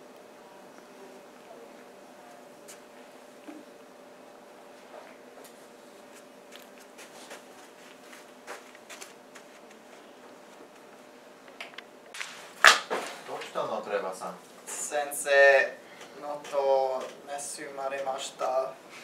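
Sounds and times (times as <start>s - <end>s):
faint steady hum: 0.0s - 19.0s
person moving about: 4.7s - 13.7s.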